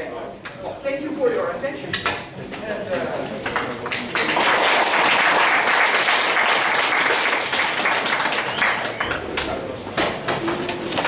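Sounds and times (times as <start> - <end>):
audience applauding: 3.4 - 9.6.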